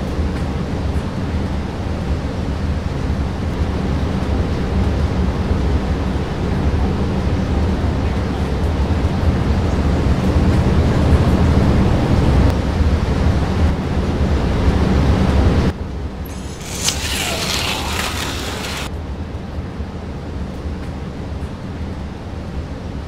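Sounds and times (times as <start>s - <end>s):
high-pitched scratchy whir: 16.3s - 18.9s
slot cars whirring: 16.3s - 18.9s.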